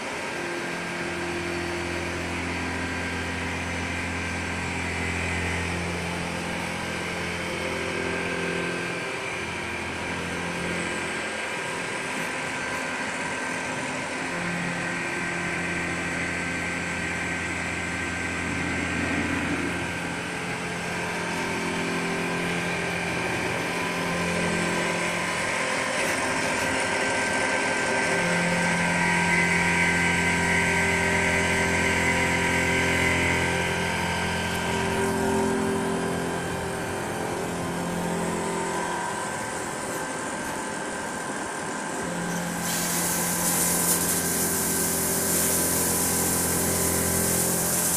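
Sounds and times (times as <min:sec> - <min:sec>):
machine mechanical hum: 0:00.0 - 0:47.9
machining hiss: 0:42.3 - 0:47.9.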